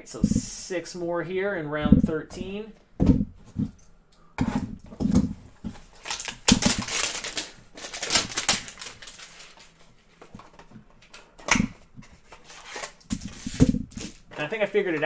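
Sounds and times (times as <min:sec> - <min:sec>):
cardboard rustling and scraping: 0:04.4 - 0:10.9, 0:11.9 - 0:14.5.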